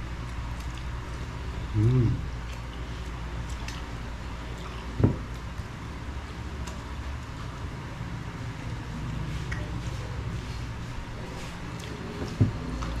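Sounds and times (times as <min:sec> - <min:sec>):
low hum: 0:00.0 - 0:13.0
man humming mmm: 0:01.7 - 0:02.4
mouth sounds: 0:01.7 - 0:02.4.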